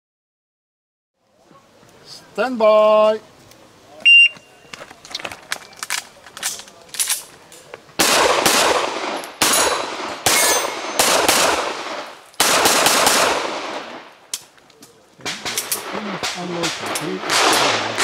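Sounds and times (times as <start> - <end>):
handgun shots echoing: 8.0 - 13.9, 15.3 - 18.0.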